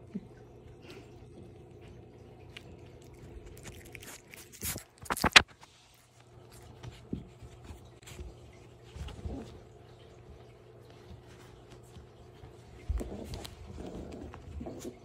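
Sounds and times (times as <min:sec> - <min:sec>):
puppies chewing rope toy: 0:00.8 - 0:05.4, 0:06.5 - 0:15.0.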